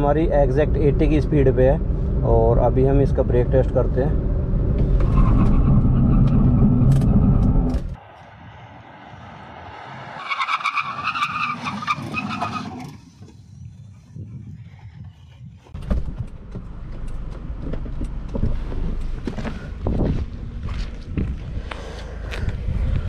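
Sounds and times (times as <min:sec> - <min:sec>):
wind rumbling on microphone: 0:00.0 - 0:10.2, 0:12.9 - 0:23.0
tyres squealing under braking: 0:10.2 - 0:13.0.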